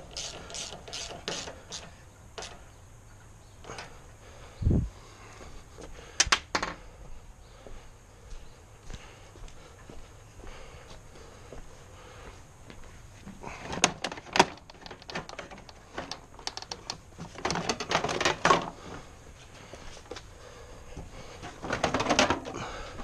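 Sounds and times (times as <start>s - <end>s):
plastic fairing clicks and knocks: 13.7s - 18.8s, 21.5s - 22.6s.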